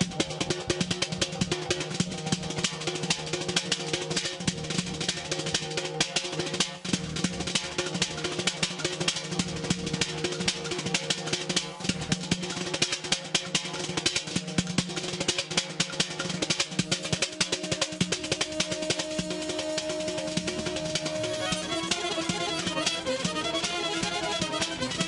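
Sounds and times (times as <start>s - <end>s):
held melody instrument notes: 0.0s - 25.0s
rapid dense drumming: 0.0s - 25.0s.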